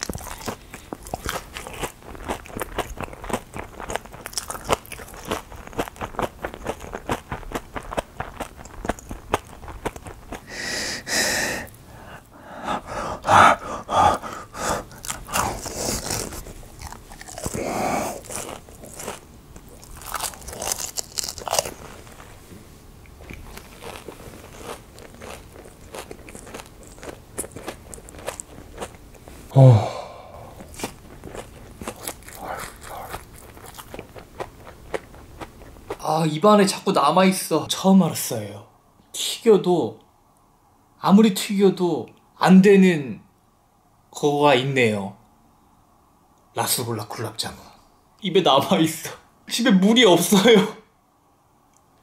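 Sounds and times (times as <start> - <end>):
crisp chewing and crunching: 0.0 - 10.5, 14.8 - 22.4, 23.1 - 29.3, 30.5 - 36.0.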